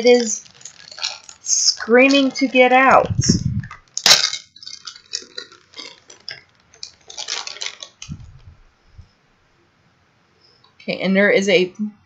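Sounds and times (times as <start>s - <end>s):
plastic bag crinkling: 0.0s - 9.1s.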